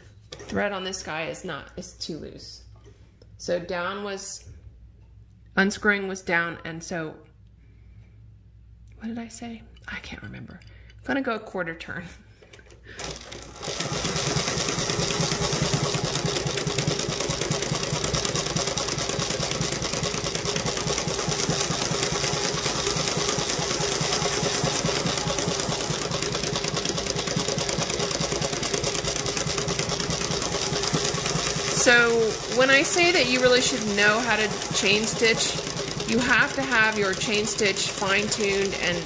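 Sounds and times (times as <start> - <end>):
embroidery machine sewing: 13.0 - 39.0.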